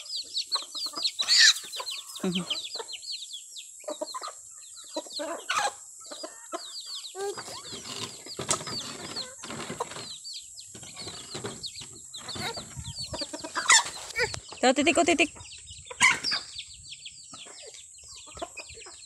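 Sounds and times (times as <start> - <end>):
chickens clucking: 0.0 - 19.0
chicks peeping: 0.0 - 19.0
rustling: 7.2 - 14.6.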